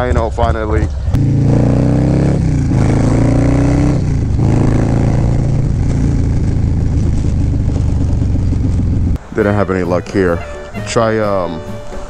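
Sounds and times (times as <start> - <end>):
motorcycle engine accelerating: 0.0 - 9.2.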